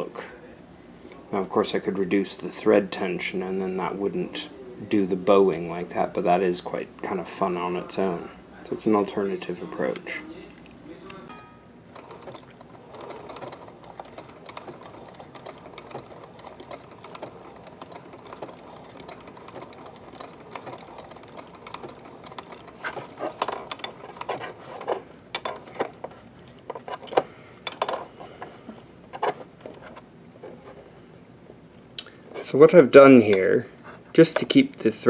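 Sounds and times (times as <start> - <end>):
sewing machine stitching: 11.9 - 26.2
irregular clicks and knocks: 11.9 - 30.9.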